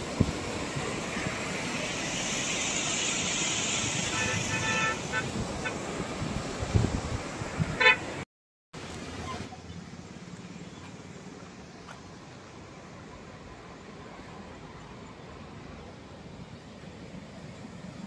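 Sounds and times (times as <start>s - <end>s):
vehicle horn honking: 4.1s - 5.3s, 7.8s - 8.2s.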